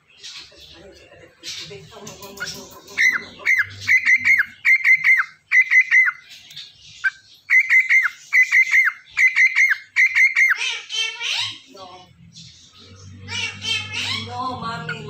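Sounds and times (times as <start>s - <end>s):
cockatiel whistling: 7.0s - 10.6s.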